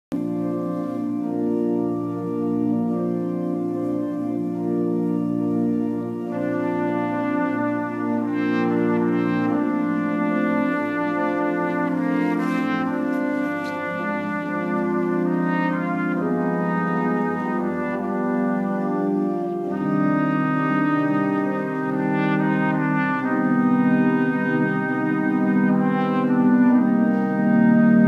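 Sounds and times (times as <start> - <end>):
sustained organ chords: 0.1 - 28.0
trumpet playing slow melody: 0.1 - 28.0.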